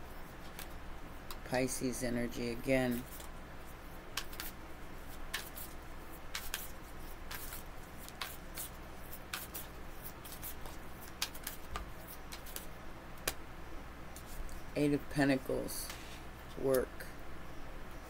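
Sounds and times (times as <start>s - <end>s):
cards snapping and tapping: 4.2s - 4.5s, 10.6s - 13.4s.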